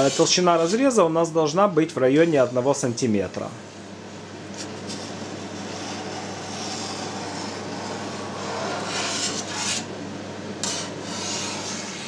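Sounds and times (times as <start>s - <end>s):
steady low hum: 0.0s - 12.0s
knife scraping steel vat: 4.6s - 9.9s, 10.6s - 12.0s.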